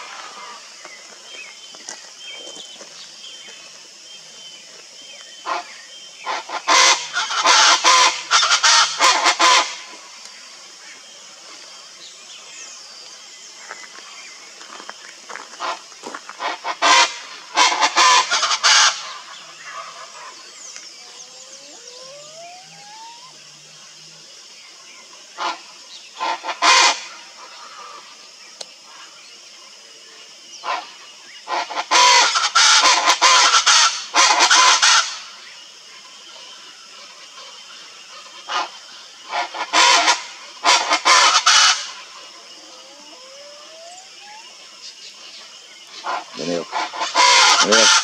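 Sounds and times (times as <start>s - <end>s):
bird harsh repeated calls: 5.4s - 9.9s, 15.5s - 23.6s, 30.6s - 35.4s, 38.1s - 44.7s, 45.9s - 48.0s.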